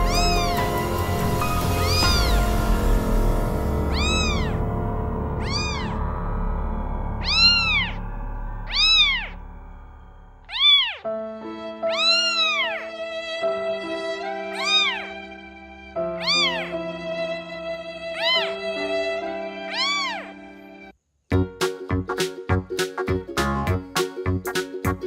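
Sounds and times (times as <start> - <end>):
cat meowing: 0.0 - 2.6, 3.9 - 4.6, 5.4 - 6.0, 7.2 - 8.0, 8.6 - 9.4, 10.4 - 11.1, 11.8 - 15.5, 16.1 - 20.5
background music: 0.0 - 25.0.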